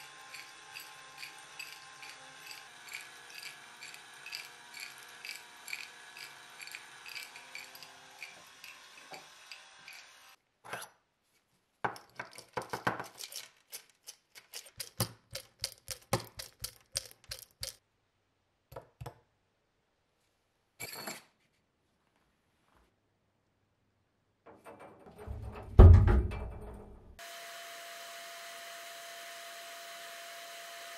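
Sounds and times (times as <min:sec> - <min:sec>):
cordless drill spinning: 0:00.0 - 0:10.4, 0:27.2 - 0:30.9.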